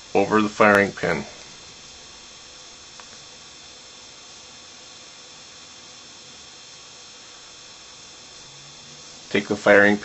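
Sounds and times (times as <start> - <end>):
steady background hiss: 0.0 - 10.0.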